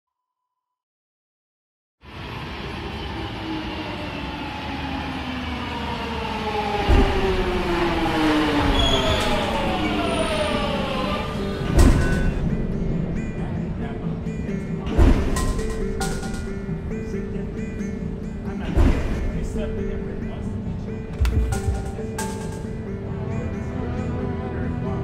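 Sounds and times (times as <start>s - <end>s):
subway train motor whine: 2.0s - 14.6s
train rumble: 2.1s - 14.2s, 21.1s - 22.8s
loud thumps: 21.1s - 22.8s.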